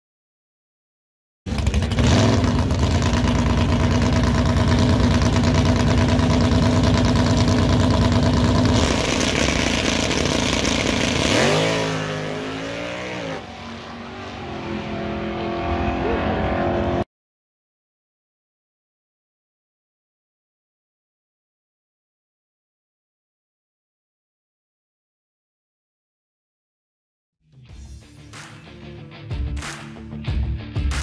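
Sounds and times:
drag racing engine revving: 0:01.5 - 0:17.0
race car accelerating through gears: 0:08.7 - 0:17.1.

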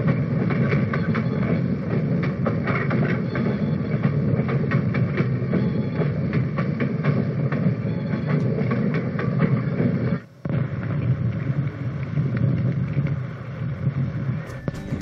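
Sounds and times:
wheels clicking over rail joints: 0:00.0 - 0:10.2
railway coaches rumbling past: 0:00.0 - 0:10.3, 0:11.4 - 0:15.0.

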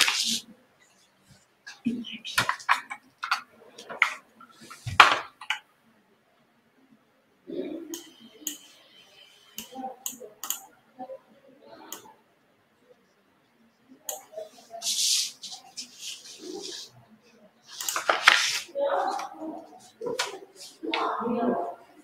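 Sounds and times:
faint low voices: 0:05.7 - 0:22.0.

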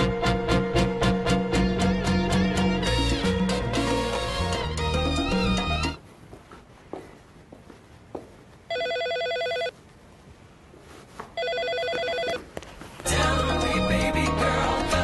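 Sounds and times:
music: 0:00.0 - 0:06.0, 0:13.0 - 0:15.0
telephone ringing: 0:08.7 - 0:09.8, 0:11.4 - 0:12.5.

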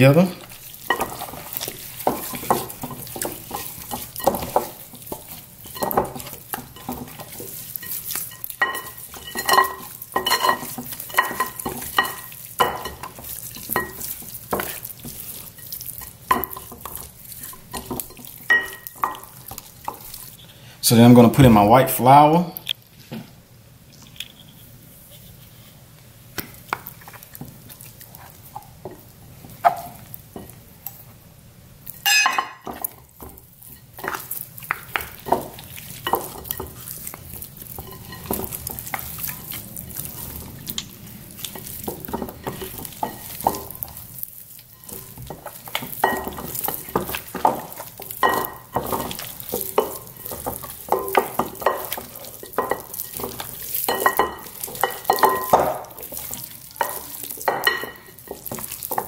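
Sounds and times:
wet squishing of meat: 0:00.0 - 0:20.4, 0:33.4 - 0:59.0.

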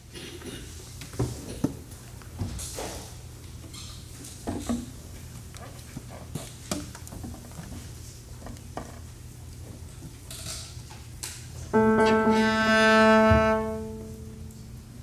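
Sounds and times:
steady low hum: 0:11.6 - 0:15.0.

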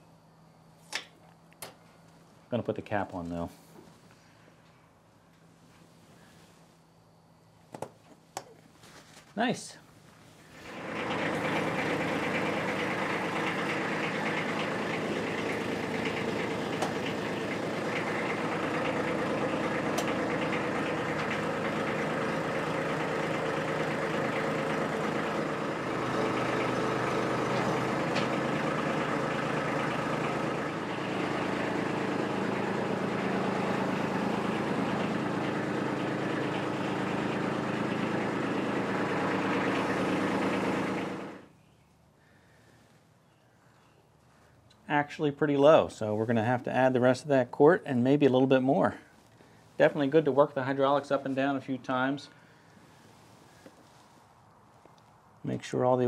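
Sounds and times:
tractor diesel engine running: 0:10.4 - 0:41.6.

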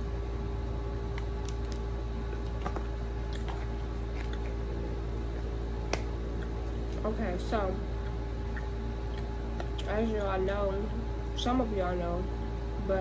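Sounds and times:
steady low hum: 0:00.0 - 0:13.0
person chewing burger: 0:01.0 - 0:07.0
wet mouth clicks: 0:08.0 - 0:10.0.

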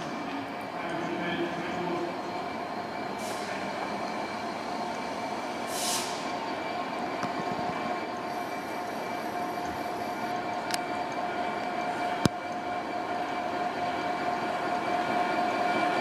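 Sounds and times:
diesel locomotive running: 0:00.0 - 0:16.0
short hiss: 0:05.7 - 0:06.2.

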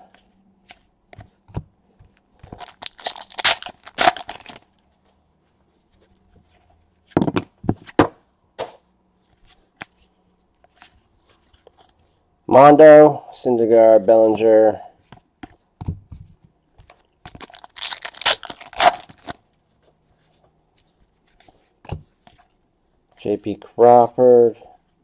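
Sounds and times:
cards rustling and sliding: 0:02.3 - 0:04.7, 0:16.8 - 0:19.4.

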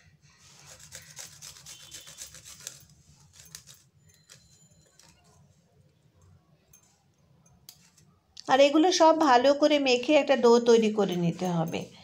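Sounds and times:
ginger rasping on a metal grater: 0:00.5 - 0:03.6.

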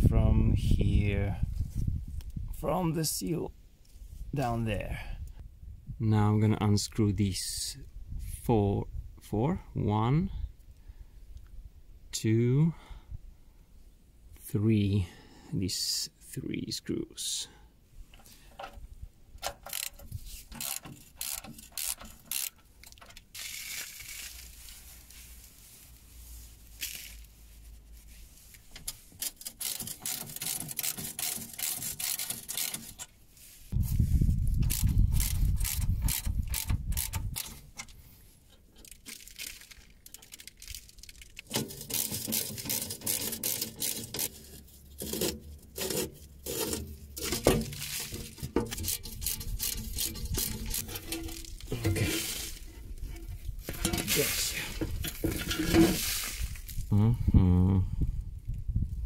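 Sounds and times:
ratchet wrench clicking: 0:19.6 - 0:22.6, 0:29.2 - 0:33.0, 0:34.6 - 0:37.6.

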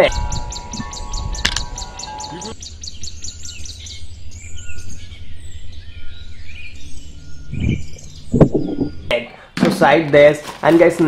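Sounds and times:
small birds chirping: 0:00.0 - 0:10.0
low steady rumble: 0:02.6 - 0:09.1.

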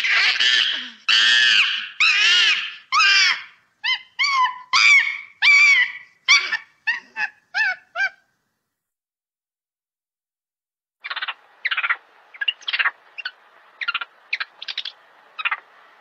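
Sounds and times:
monkey screaming: 0:00.0 - 0:08.2.

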